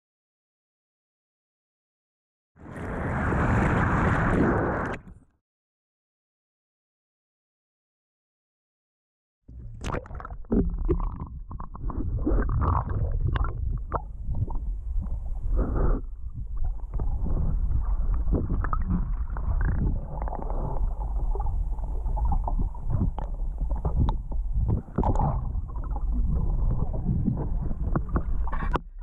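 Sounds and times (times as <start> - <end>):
underwater water sloshing gurgling: 9.5 - 29.0.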